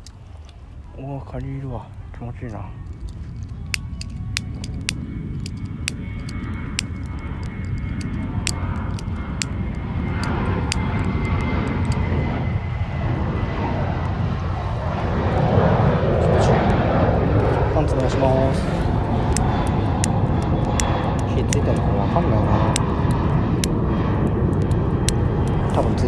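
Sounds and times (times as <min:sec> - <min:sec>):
airplane engine rumble: 0:00.0 - 0:26.0
sharp clicks: 0:02.9 - 0:12.1, 0:19.2 - 0:21.8.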